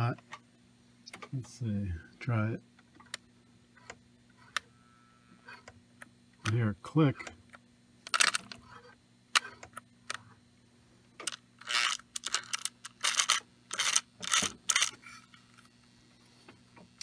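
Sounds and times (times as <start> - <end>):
motor clicks and scratchy bursts: 11.2 - 15.0
toy train motor humming: 11.3 - 15.0.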